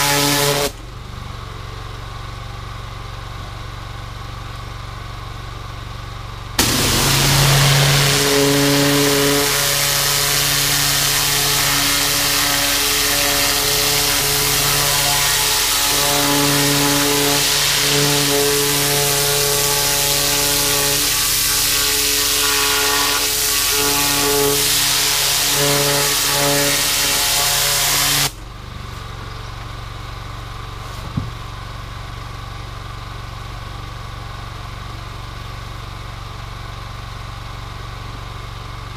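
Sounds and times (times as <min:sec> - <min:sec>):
high-pressure water jet hissing: 0:00.0 - 0:00.8, 0:06.6 - 0:28.4
pressure washer engine: 0:00.0 - 0:38.9.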